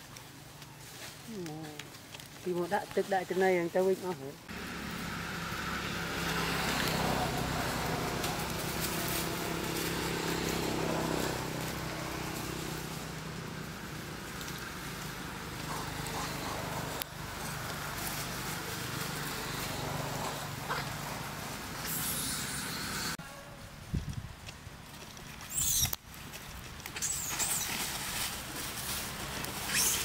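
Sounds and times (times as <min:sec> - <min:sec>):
outdoor background noise: 0:00.0 - 0:30.0
vehicle engine humming: 0:04.1 - 0:23.3, 0:25.8 - 0:30.0.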